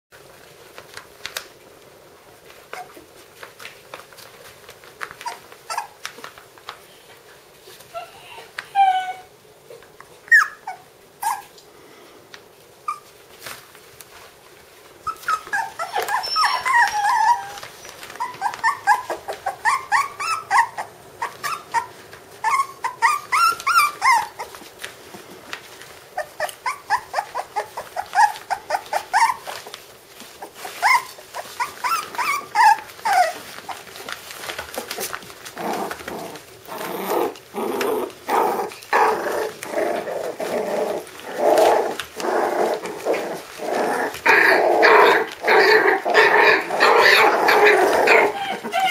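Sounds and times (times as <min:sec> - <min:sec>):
puppies yelping and growling: 0:05.2 - 0:06.2, 0:07.9 - 0:09.3, 0:10.3 - 0:11.5, 0:15.0 - 0:24.8, 0:25.8 - 0:48.9.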